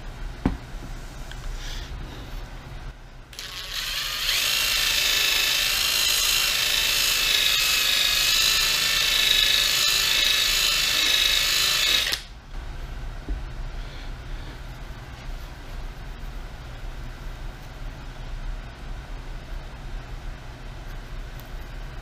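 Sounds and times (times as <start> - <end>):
power tool motor whining: 3.4 - 12.3.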